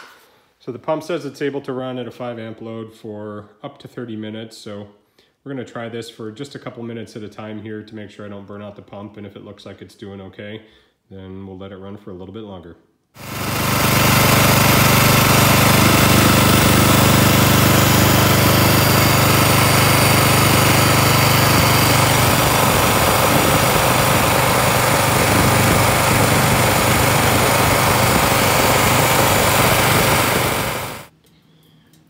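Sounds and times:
small engine running: 13.2 - 31.1.

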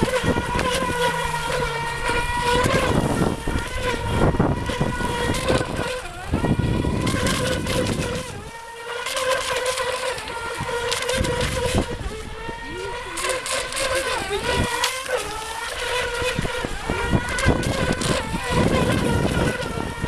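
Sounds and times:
model boat motor whining: 0.0 - 20.0.

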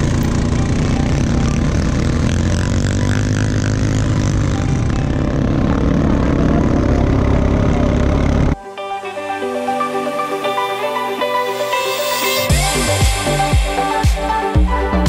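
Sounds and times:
quad bike engine running: 0.0 - 8.6, 12.5 - 15.0.

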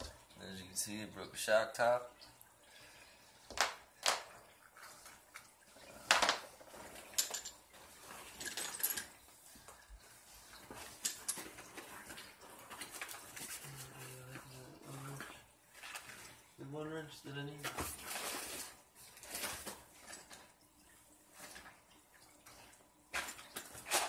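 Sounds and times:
metal tools clinking: 6.2 - 9.2, 10.8 - 11.6.

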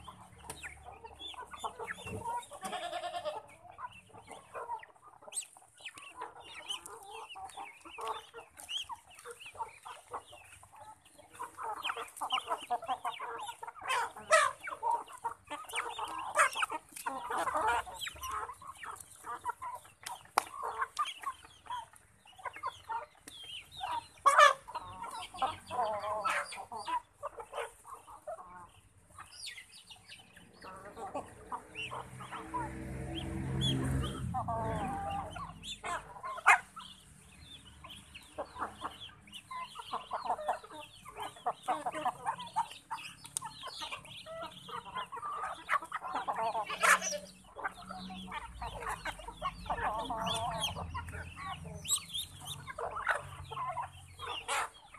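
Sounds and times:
chickens clucking: 0.0 - 54.9.

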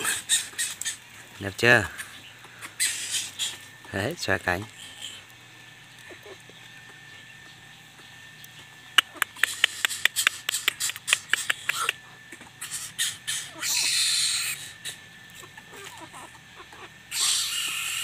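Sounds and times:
short bird calls: 0.0 - 3.8
harsh hissing rasp: 0.0 - 5.4, 12.6 - 15.1, 17.1 - 18.0
bird clicking: 9.0 - 12.0.

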